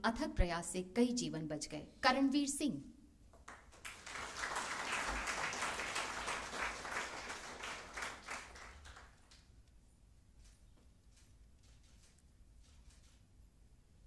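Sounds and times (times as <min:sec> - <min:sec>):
audience applauding: 0:03.5 - 0:09.5.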